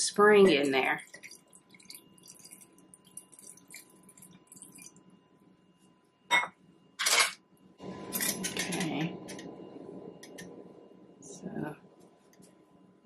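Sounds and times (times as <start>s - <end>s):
water trickling into jar: 0.3s - 5.0s.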